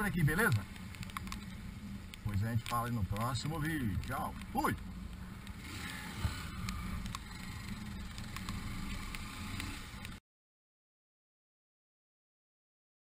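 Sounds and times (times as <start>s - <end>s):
motorcycle engine running: 0.0s - 10.2s.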